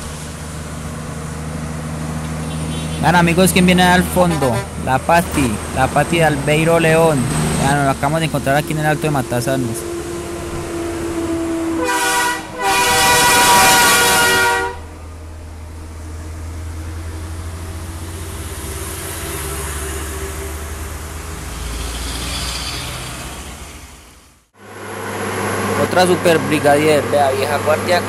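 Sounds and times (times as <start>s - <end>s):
truck engine passing: 0.0s - 28.0s
tyres on wet road: 0.0s - 28.0s
truck air horn blasts: 2.4s - 5.3s, 8.5s - 15.0s.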